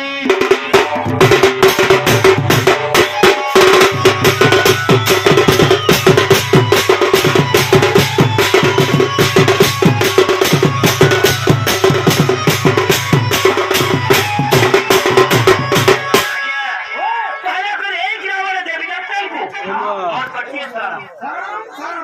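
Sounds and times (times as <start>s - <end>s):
barrel drum played fast: 0.2s - 16.3s.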